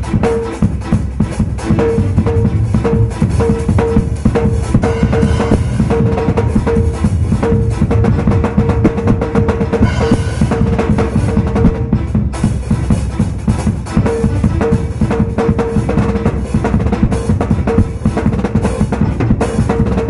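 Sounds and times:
acoustic drum kit played fast: 0.0s - 20.0s
cymbal crashes: 3.1s - 7.9s, 9.8s - 11.8s.

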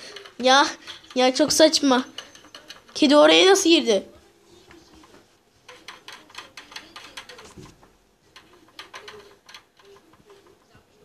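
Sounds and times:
light clicks and taps: 4.6s - 10.9s.

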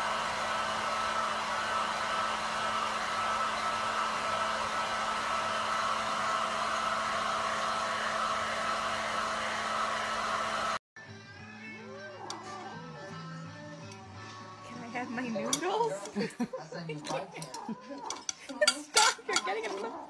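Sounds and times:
small appliance motor blowing: 0.0s - 10.8s.

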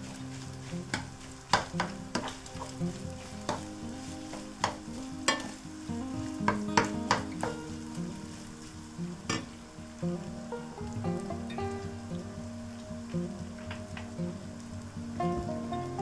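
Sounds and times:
meat and onion sizzling: 0.0s - 16.0s
spatula knocking pan: 0.9s - 2.7s, 3.4s - 5.6s, 6.4s - 7.7s.

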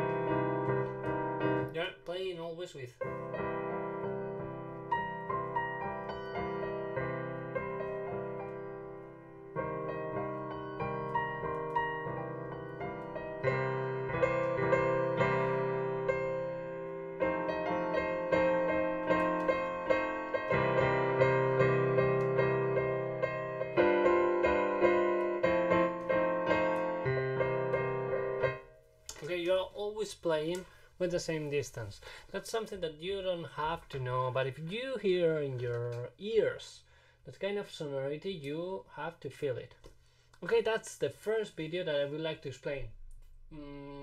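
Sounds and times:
piano playing: 0.0s - 29.9s.

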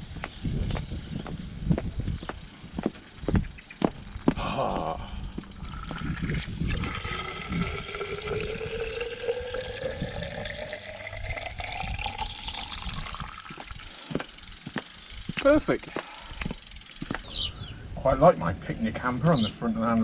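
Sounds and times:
water filling plastic bottle: 5.6s - 14.2s.

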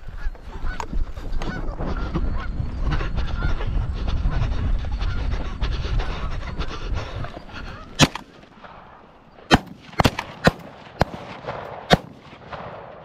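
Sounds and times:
shotgun shots: 8.0s - 13.0s.

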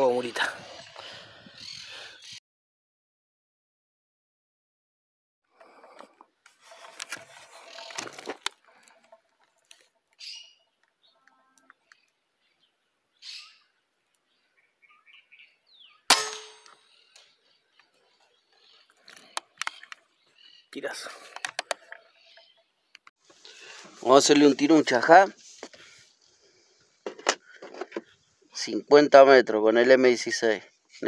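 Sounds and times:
air rifle shot: 16.1s - 16.7s.

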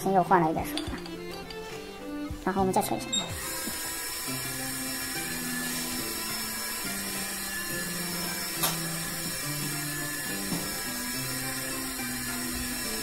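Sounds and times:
electric motor whirring: 3.0s - 13.0s.

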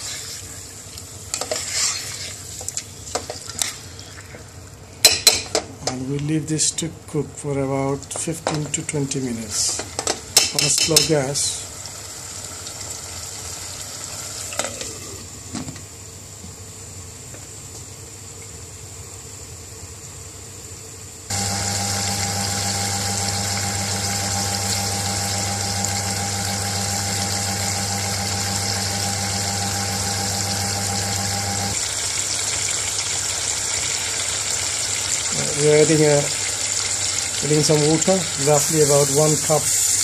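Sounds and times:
tap water running: 21.3s - 40.0s.

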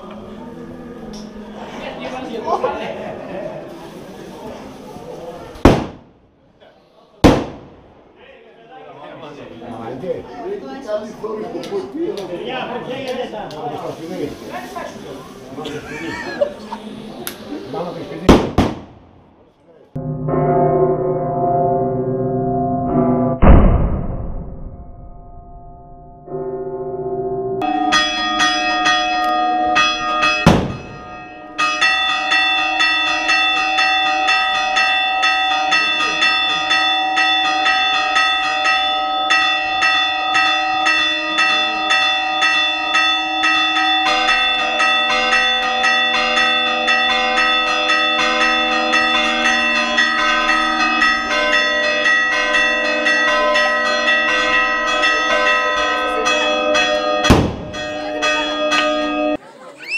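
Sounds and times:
loud sharp bangs: 5.6s - 6.2s, 7.2s - 8.1s, 18.2s - 19.3s, 23.4s - 25.0s, 30.4s - 31.1s, 57.2s - 57.9s
church bells pealing: 20.0s - 23.4s, 25.1s - 59.4s.

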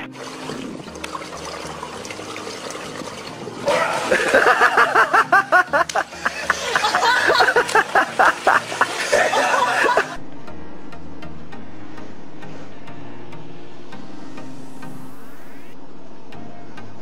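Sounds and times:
pool water splashing: 0.0s - 10.2s
person laughing loudly: 3.7s - 10.2s.

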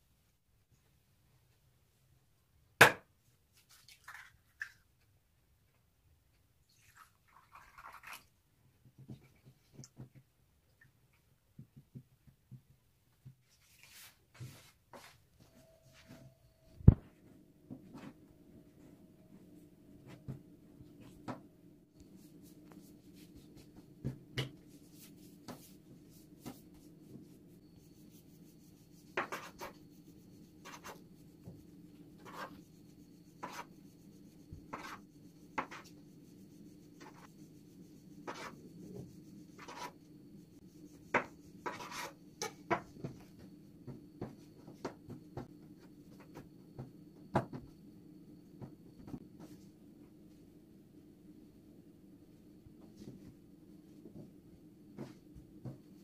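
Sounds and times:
steady low hum: 15.4s - 56.0s
hands rolling dough on wood: 16.9s - 47.8s, 52.8s - 56.0s.

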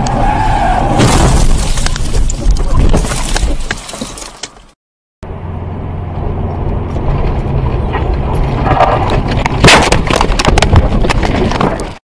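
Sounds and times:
car engine and road noise: 0.0s - 2.1s, 3.3s - 12.0s
car crashing and tumbling: 0.7s - 4.7s, 8.0s - 12.0s.

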